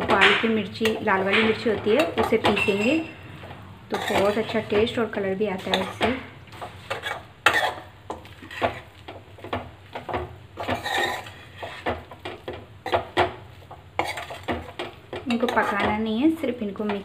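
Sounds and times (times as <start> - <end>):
metal spoon scraping a metal pan: 0.0 - 9.0, 10.6 - 13.2, 14.0 - 16.0.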